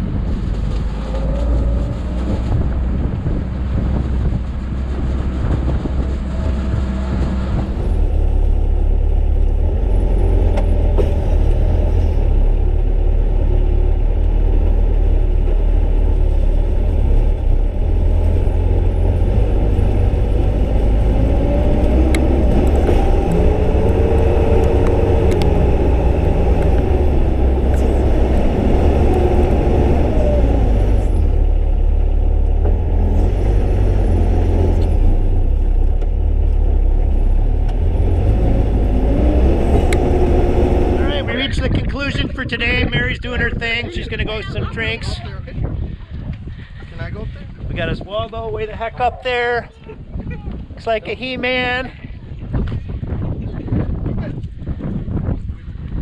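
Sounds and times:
diesel engine low rumble: 0.0s - 56.0s.

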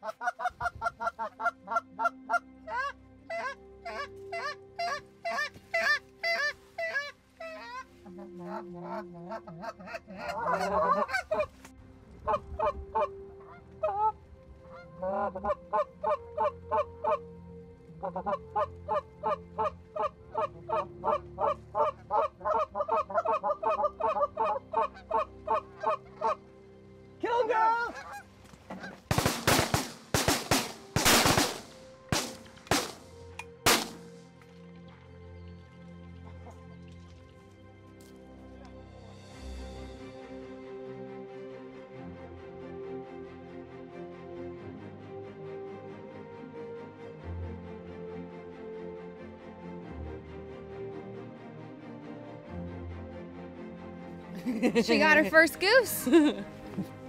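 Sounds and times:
goose calls honking and clucking: 0.0s - 11.6s, 12.3s - 17.2s, 18.0s - 26.4s, 27.7s - 29.0s
shotgun shots: 29.1s - 33.1s, 33.7s - 34.2s.

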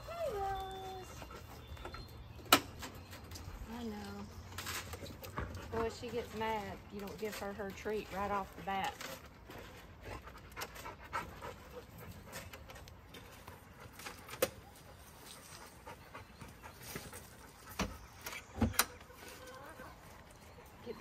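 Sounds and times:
dog panting: 9.6s - 14.0s, 14.8s - 18.2s.

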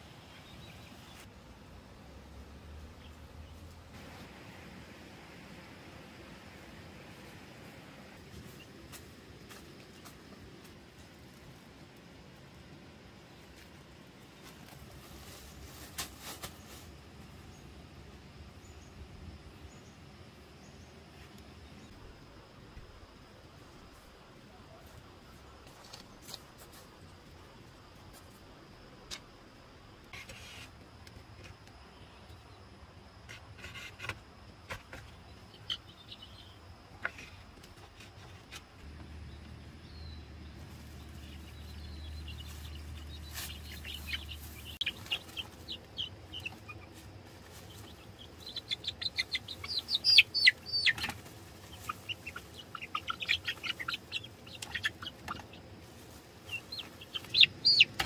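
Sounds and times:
baby chicks peeping: 38.9s - 58.0s.

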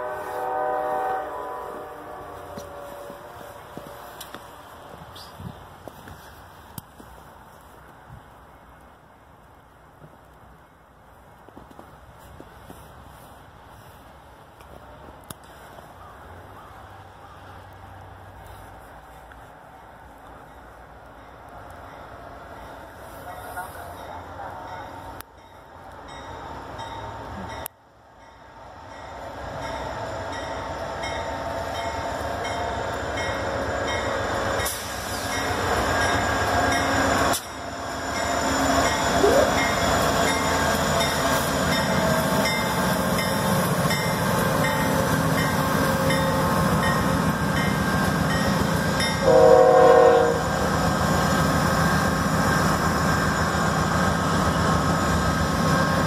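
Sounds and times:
train horn: 0.0s - 4.3s, 38.4s - 41.4s, 49.1s - 50.6s
diesel train passing: 0.0s - 56.0s.

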